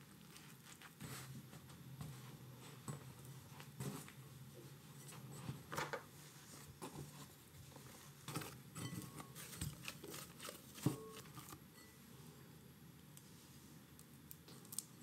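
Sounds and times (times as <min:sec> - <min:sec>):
hands kneading dough: 0:00.0 - 0:11.6.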